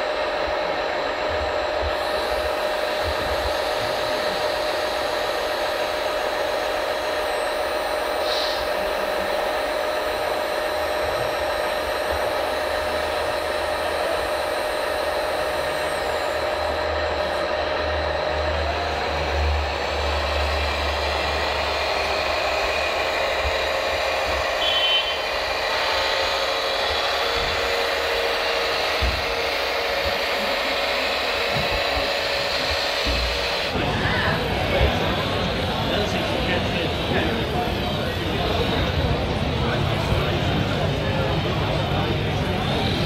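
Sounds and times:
model tractor hum and whine: 0:00.0 - 0:43.0.

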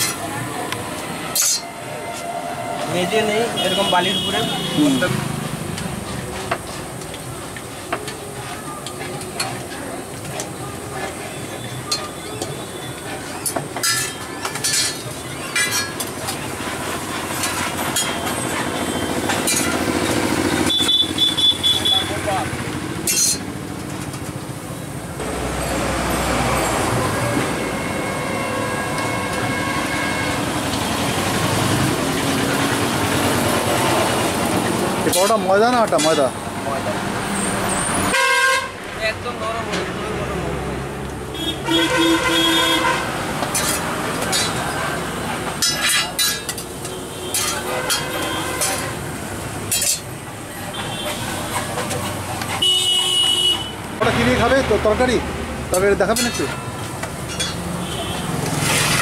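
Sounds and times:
street traffic: 0:00.0 - 0:59.0
metal spatula striking griddle: 0:01.3 - 0:01.7, 0:13.2 - 0:16.4, 0:19.0 - 0:20.1, 0:23.0 - 0:23.5, 0:35.9 - 0:36.3, 0:43.4 - 0:44.8, 0:45.4 - 0:49.0, 0:49.7 - 0:50.2, 0:56.1 - 0:57.7.

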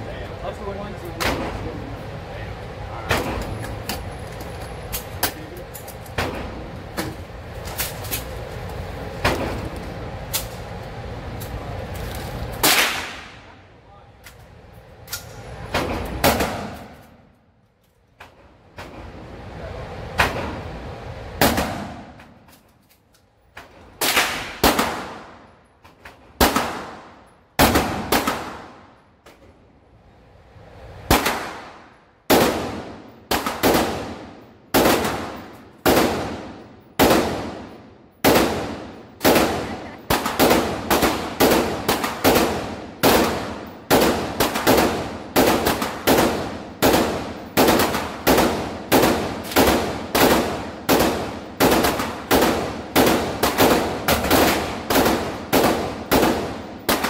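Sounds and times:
handgun shots echoing indoors: 0:12.6 - 0:13.5.

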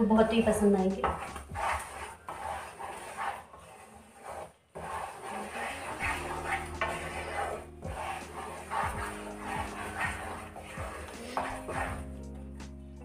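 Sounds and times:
wooden spatula scraping a pan: 0:00.0 - 0:12.8.

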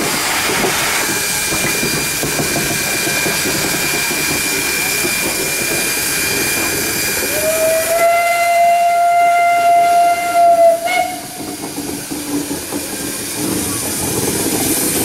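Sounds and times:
steam hissing: 0:00.0 - 0:15.0
steam locomotive whistle: 0:06.2 - 0:11.5.

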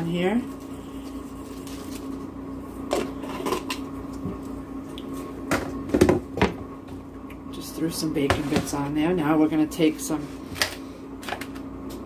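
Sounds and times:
low electrical hum: 0:00.0 - 0:12.0
containers knocking and clattering: 0:05.5 - 0:06.6.

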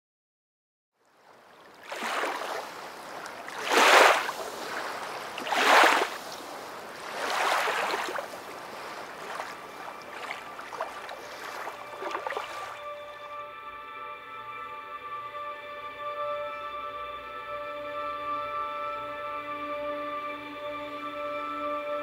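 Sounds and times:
waves washing onto rocky shore: 0:01.9 - 0:12.8.

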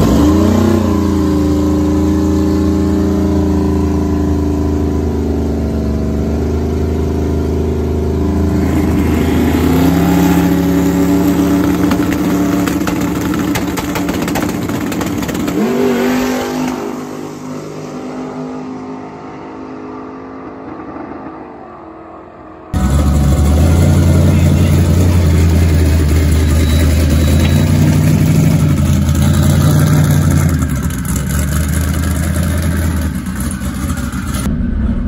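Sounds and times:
v eight engine revving: 0:00.0 - 0:21.9, 0:22.7 - 0:35.0
exhaust pops crackling: 0:10.8 - 0:16.8.

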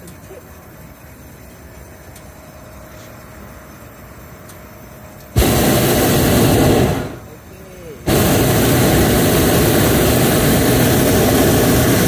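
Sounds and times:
faint air noise: 0:00.5 - 0:12.0
propane burner blast: 0:02.8 - 0:12.0.

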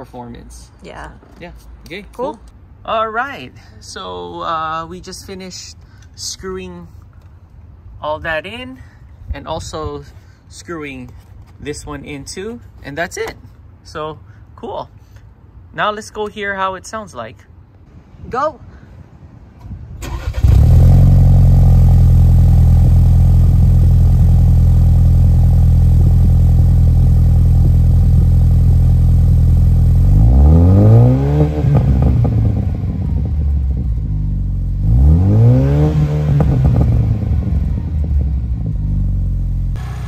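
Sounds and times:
car engine starting and running: 0:20.0 - 0:40.0
engine revving: 0:20.0 - 0:40.0.

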